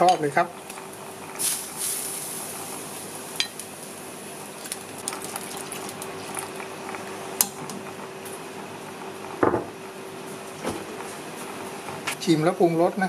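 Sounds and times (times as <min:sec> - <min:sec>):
curry bubbling in a pot: 0:03.9 - 0:08.0.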